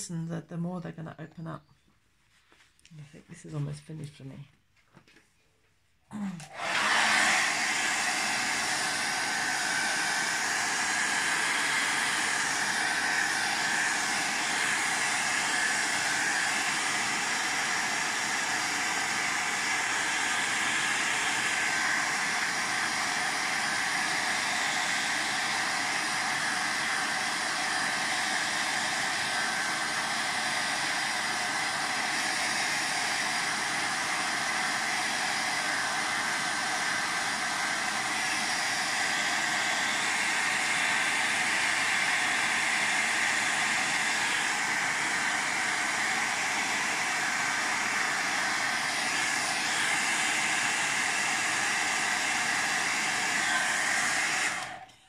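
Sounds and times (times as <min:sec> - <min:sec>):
hot-air dryer whining: 0:06.1 - 0:55.0.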